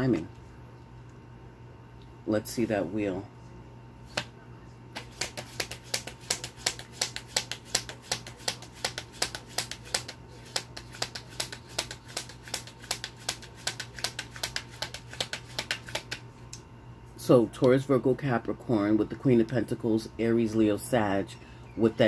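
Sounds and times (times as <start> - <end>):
cards being shuffled: 4.1 - 4.3, 5.0 - 16.3.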